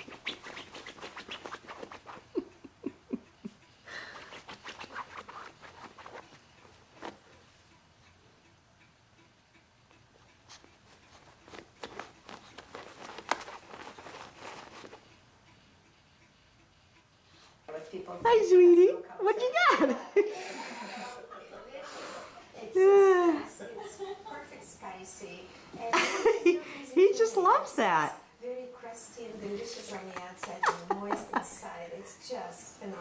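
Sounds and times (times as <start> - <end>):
puppy scuffling on carpet: 0.0 - 2.3, 4.2 - 7.4, 10.5 - 15.1, 29.2 - 30.9.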